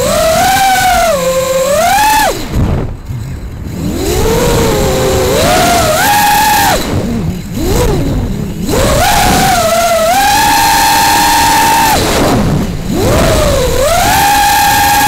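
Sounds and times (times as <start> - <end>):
drone motors whining: 0.0 - 15.0
wind noise rushing: 2.3 - 15.0.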